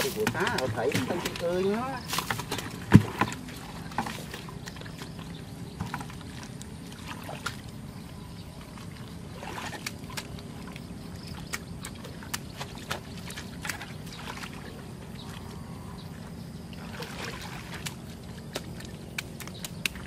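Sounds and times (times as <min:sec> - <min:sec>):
hands splashing in muddy water: 0:00.0 - 0:05.0, 0:09.3 - 0:15.4, 0:16.8 - 0:20.0
small slaps and clicks: 0:17.8 - 0:20.0.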